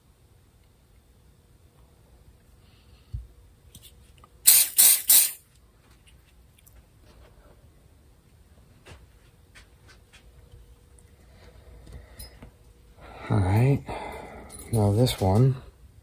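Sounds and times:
hissing sprays: 0:04.4 - 0:05.4.

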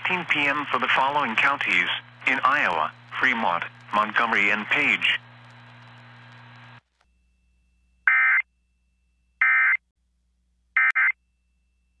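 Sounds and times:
faint broadcast hum and hiss: 0:00.0 - 0:06.8.

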